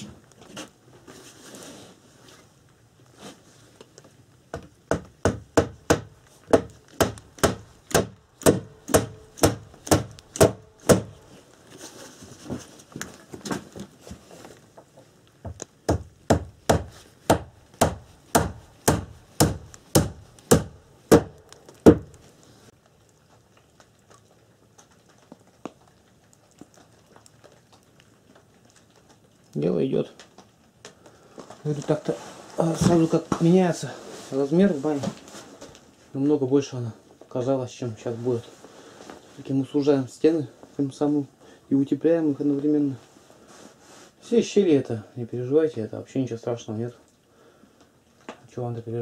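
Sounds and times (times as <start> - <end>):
hammer nailing wooden boards: 4.6 - 11.2, 15.9 - 22.2.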